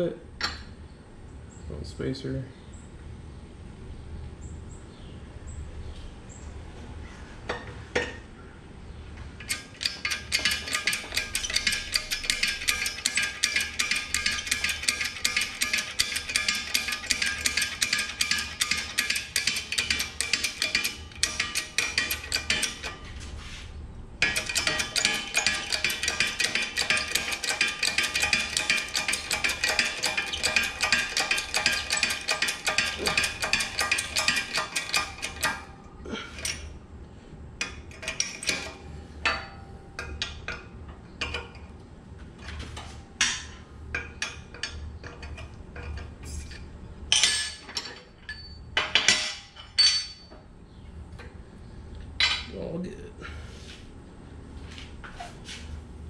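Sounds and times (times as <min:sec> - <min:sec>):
metal clanks and clicks: 0:09.4 - 0:23.2, 0:24.2 - 0:36.7, 0:37.6 - 0:41.8, 0:42.4 - 0:50.5.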